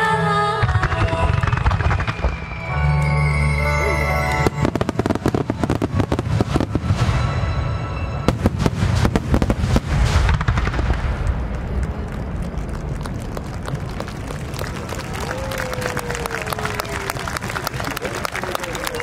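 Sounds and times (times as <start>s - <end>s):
dense fireworks crackling: 0.6s - 3.4s, 4.2s - 19.0s
fireworks bursting: 0.6s - 14.8s.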